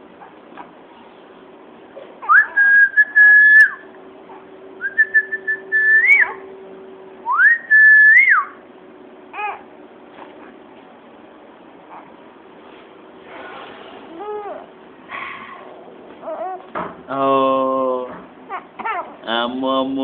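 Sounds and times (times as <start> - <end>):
person whistling: 2.3 - 3.8, 4.8 - 6.3, 7.3 - 8.5.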